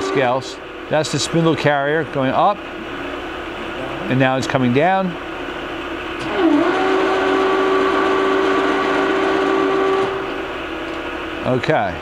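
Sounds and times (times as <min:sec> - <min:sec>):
feed motor whine: 0:00.0 - 0:12.0
milling machine hum: 0:00.0 - 0:12.0.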